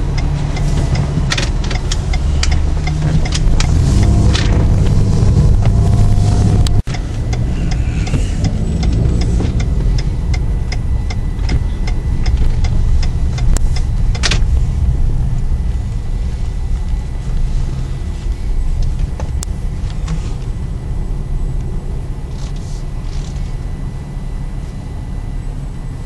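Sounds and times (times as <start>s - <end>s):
regular ticking: 0.0s - 20.6s
car engine and road rumble: 0.0s - 26.0s.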